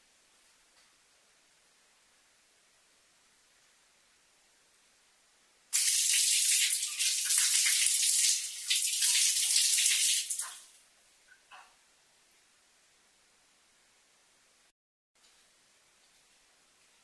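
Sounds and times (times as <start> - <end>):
water running and splashing: 5.8 - 10.7.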